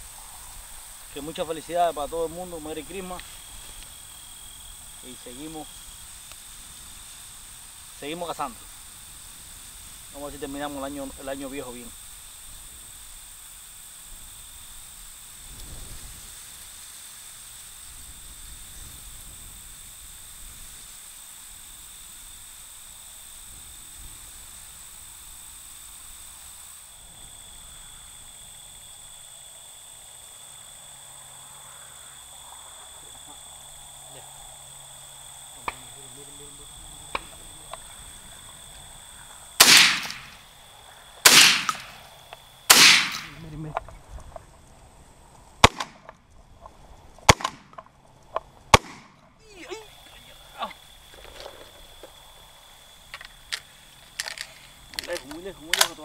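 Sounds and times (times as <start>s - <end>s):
high-pitched insect drone: 0.0s - 56.0s
wind rumble on microphone: 15.4s - 16.6s, 17.8s - 20.9s, 43.4s - 45.6s
shotgun shots: 39.6s - 40.4s, 41.2s - 42.0s, 42.7s - 43.4s, 45.6s - 46.0s, 47.3s - 47.7s, 48.7s - 49.1s.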